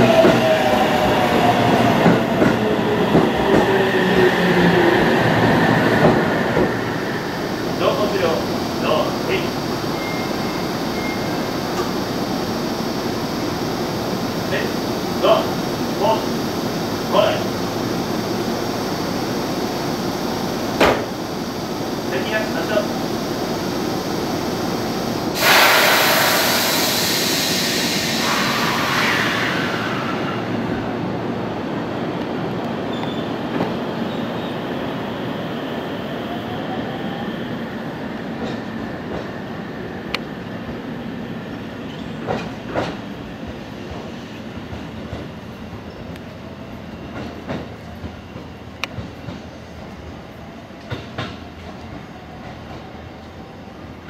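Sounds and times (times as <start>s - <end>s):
train running: 0.0s - 34.5s, 36.9s - 54.0s
air hiss: 21.2s - 30.7s.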